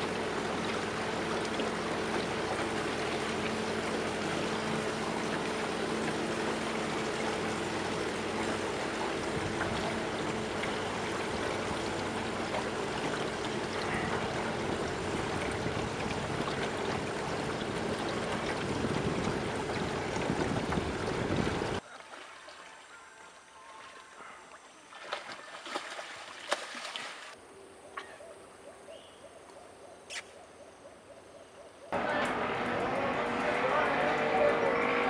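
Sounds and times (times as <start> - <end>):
water lapping along boat hull: 0.0 - 27.4.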